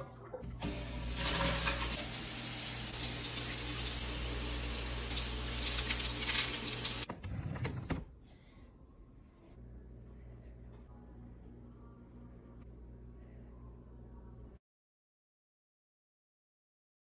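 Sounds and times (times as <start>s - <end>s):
shower water spraying: 0.6s - 7.1s.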